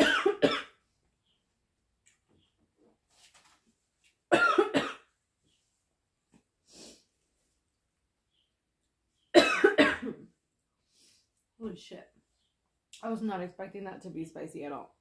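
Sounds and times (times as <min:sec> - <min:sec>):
woman coughing: 0:00.0 - 0:00.8, 0:04.3 - 0:05.1, 0:09.4 - 0:10.3.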